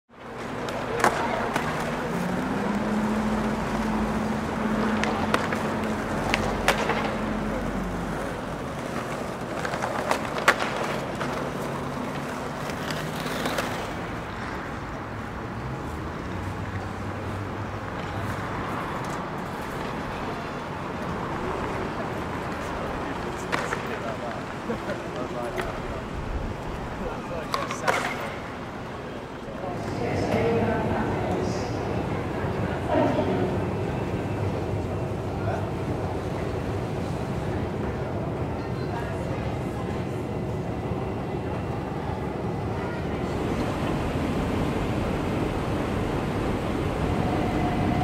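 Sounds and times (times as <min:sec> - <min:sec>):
street noise: 0:00.1 - 0:48.0
skateboard clacking on paving: 0:00.2 - 0:14.8, 0:17.8 - 0:29.9.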